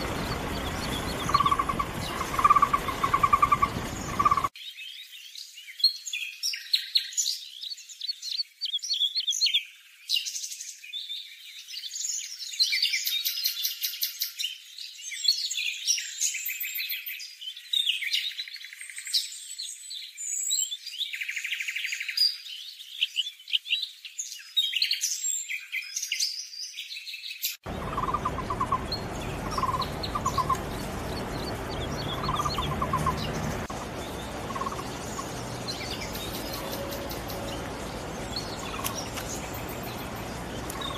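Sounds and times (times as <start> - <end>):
low background rumble: 0.0 - 4.5, 27.7 - 40.9
birds chirping and trilling: 0.0 - 40.9.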